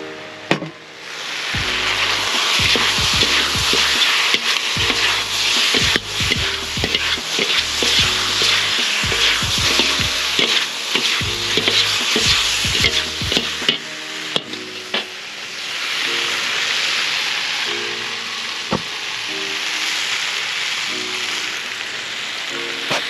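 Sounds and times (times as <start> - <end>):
food sizzling in a wok: 1.0 - 23.0
utensils scraping and clacking: 2.0 - 14.6.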